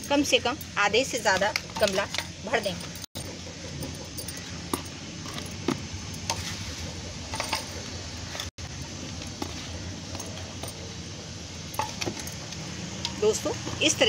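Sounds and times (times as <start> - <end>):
glass bangles clinking: 0.0 - 6.3, 7.3 - 7.8, 10.1 - 11.0, 11.6 - 13.9.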